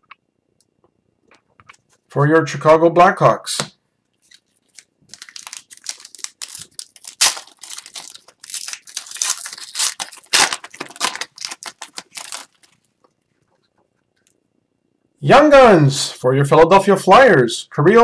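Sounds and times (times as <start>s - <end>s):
wrapper being torn open: 4.2s - 12.9s.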